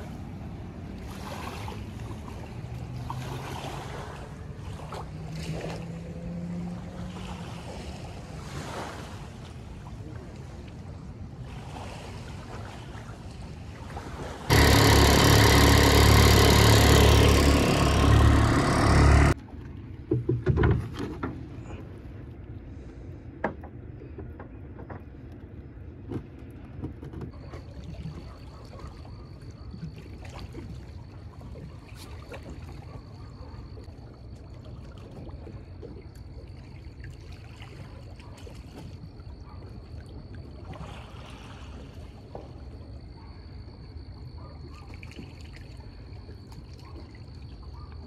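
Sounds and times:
water lapping against a boat: 0.0 - 48.0
thin high whine: 14.5 - 19.4.

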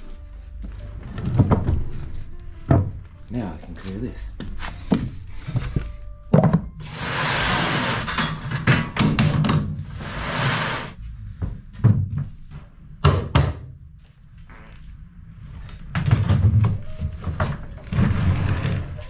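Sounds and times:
objects dragged over wooden floor: 4.5 - 6.0, 6.8 - 8.8, 9.8 - 11.9, 15.3 - 19.0
knocks and thuds of objects: 6.3 - 6.8.

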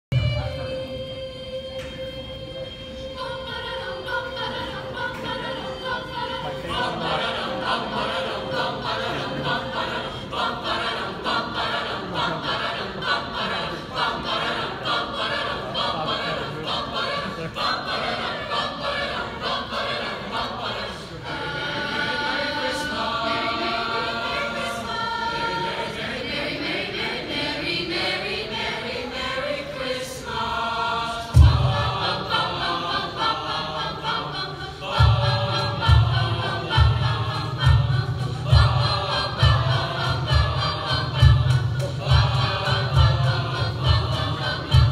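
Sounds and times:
choir singing a carol: 0.1 - 44.9.

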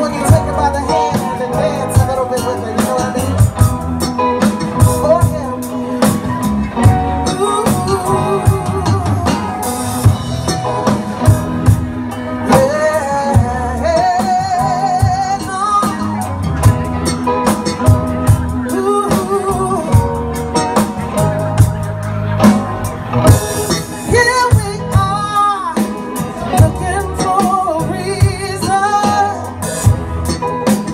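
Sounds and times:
live band playing: 0.0 - 30.9
person singing with vibrato: 6.9 - 10.2, 12.4 - 16.4, 18.6 - 20.4, 23.9 - 29.9.

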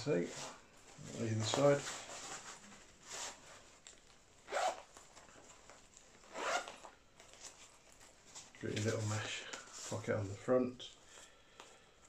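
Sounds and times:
zipper rasps: 4.4 - 5.1, 6.2 - 7.0.

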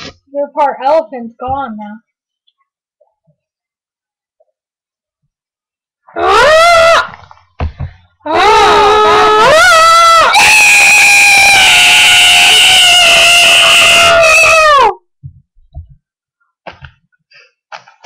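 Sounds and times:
children screeching: 8.3 - 14.9.

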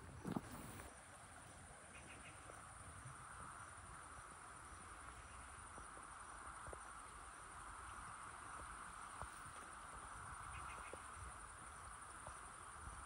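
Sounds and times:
insects trilling: 0.0 - 13.0.

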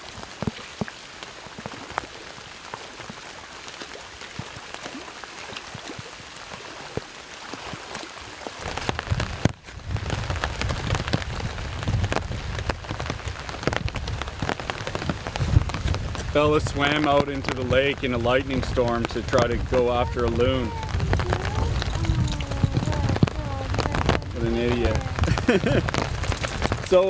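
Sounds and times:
heavy rain falling: 0.0 - 27.0
low rumble: 8.7 - 26.9.

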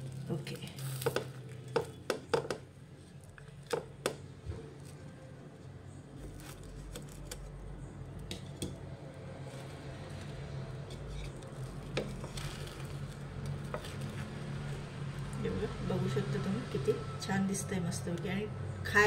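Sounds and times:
wooden spatula knocking on pan: 1.1 - 2.6.

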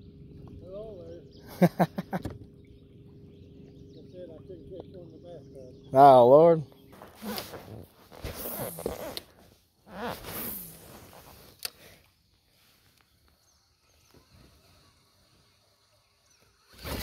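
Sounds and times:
fishing rod handling rustle: 6.9 - 13.4.

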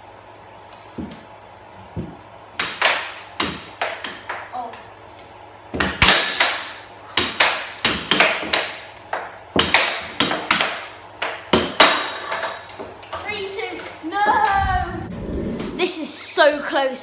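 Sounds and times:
air hockey puck clacking: 2.0 - 4.9, 5.7 - 14.5.

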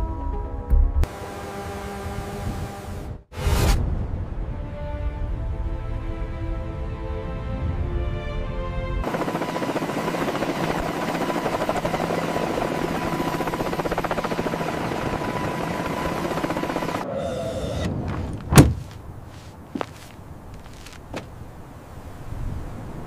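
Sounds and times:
helicopter rotor chopping: 9.0 - 18.6.

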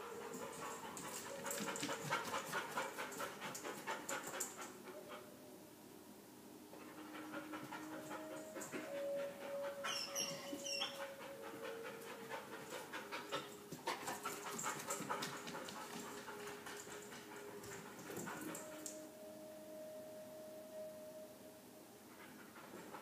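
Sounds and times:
dog panting: 0.0 - 5.3, 6.8 - 18.9, 22.1 - 23.0.

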